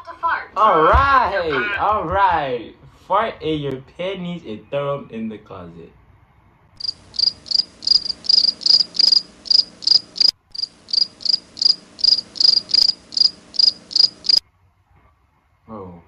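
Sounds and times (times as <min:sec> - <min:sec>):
cricket chirping: 0:06.8 - 0:14.4.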